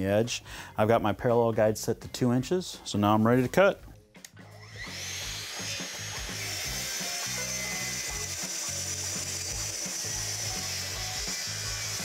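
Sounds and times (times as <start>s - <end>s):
circular saw cutting wood: 4.4s - 12.0s.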